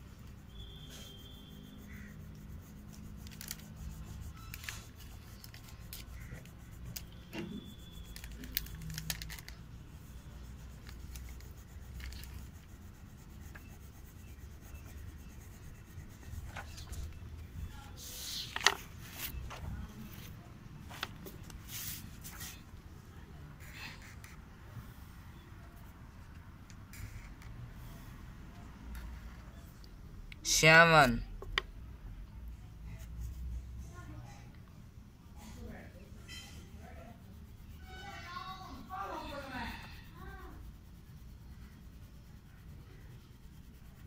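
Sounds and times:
crayon scratching on paper: 0.0s - 20.4s, 35.7s - 44.0s
small taps and scrapes: 18.4s - 22.6s, 26.2s - 27.6s, 31.4s - 31.8s.

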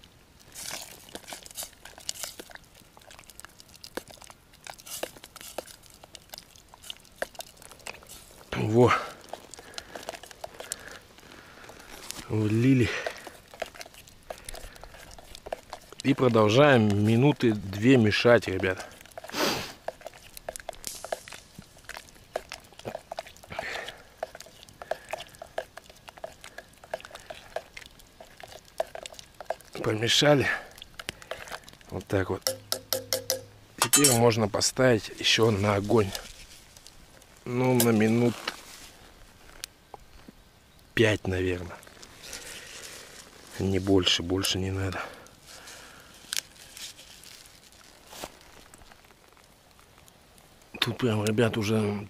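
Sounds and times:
spoon stirring in a pot: 0.5s - 11.0s, 11.7s - 34.3s
spoon scraping a pot: 32.4s - 34.2s.

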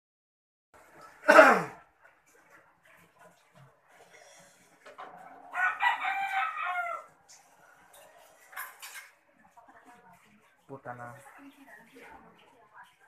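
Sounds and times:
rooster crowing: 5.1s - 7.2s.

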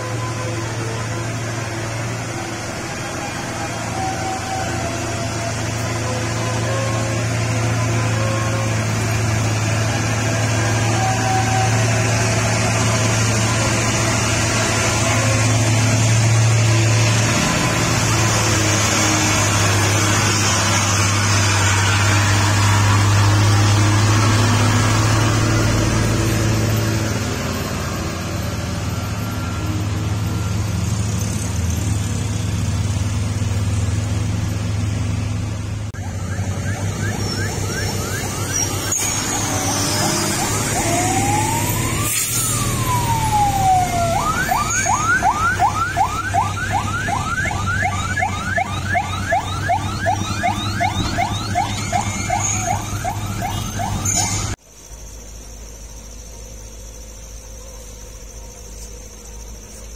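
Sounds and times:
diesel truck engine droning: 0.0s - 59.9s.

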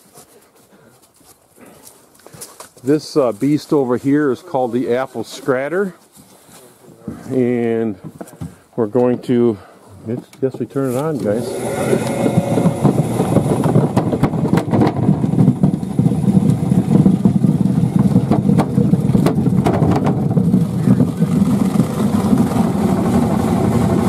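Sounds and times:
apples knocking against wooden hopper: 7.9s - 9.2s, 10.1s - 22.6s
motor running steadily: 11.2s - 24.0s.

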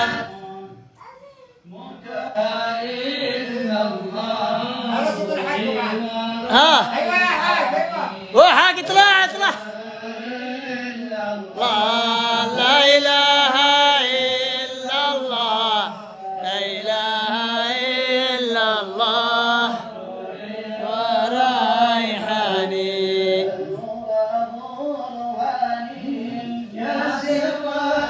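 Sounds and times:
solo voice chanting: 0.0s - 10.3s.

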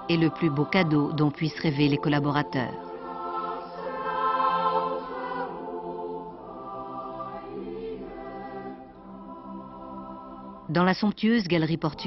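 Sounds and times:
choir singing long notes: 0.0s - 10.7s.

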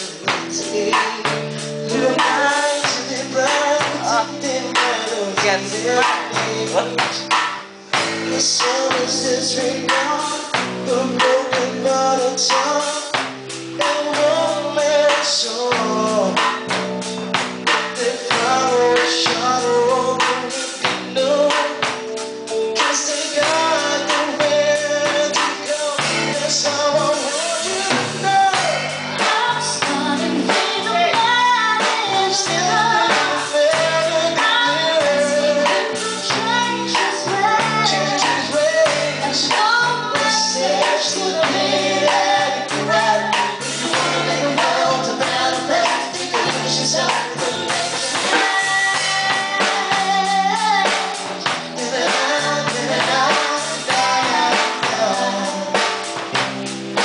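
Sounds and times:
woman singing: 0.0s - 7.4s, 22.8s - 56.2s
drum kit with cymbals: 0.0s - 57.0s
electric guitar: 0.0s - 57.0s.

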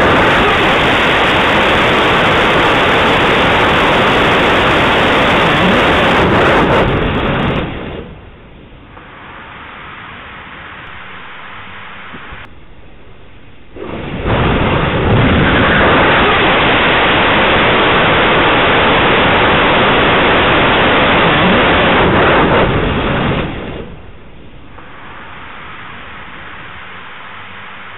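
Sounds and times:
rocket engine firing: 0.0s - 27.9s
quiet hiss: 7.4s - 17.6s, 22.6s - 27.9s.

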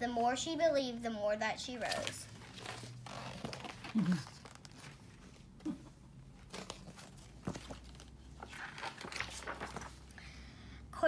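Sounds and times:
book pages rustling: 1.7s - 10.2s.

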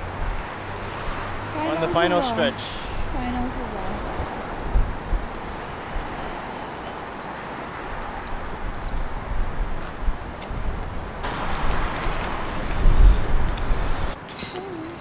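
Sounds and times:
wind rumble on microphone: 0.0s - 1.6s, 2.9s - 6.6s, 7.8s - 14.2s
street traffic: 0.0s - 15.0s.

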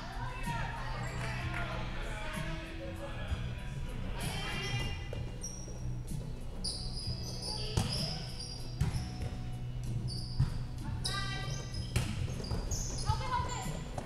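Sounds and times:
sneakers squeaking on court floor: 4.6s - 14.0s.

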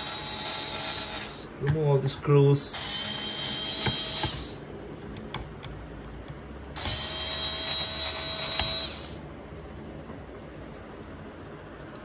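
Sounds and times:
cordless drill running: 0.0s - 1.5s, 2.8s - 4.6s, 6.8s - 9.2s.

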